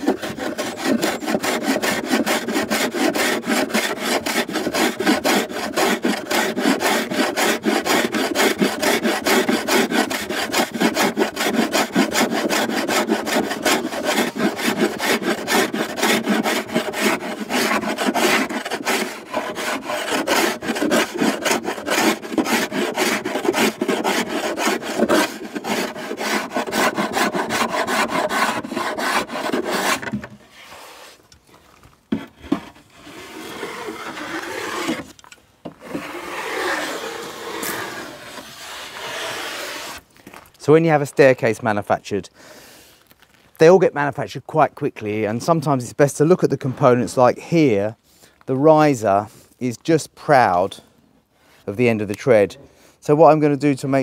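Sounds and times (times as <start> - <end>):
hand plane shaving wood: 0.0 - 31.2, 32.1 - 35.1, 35.7 - 40.0.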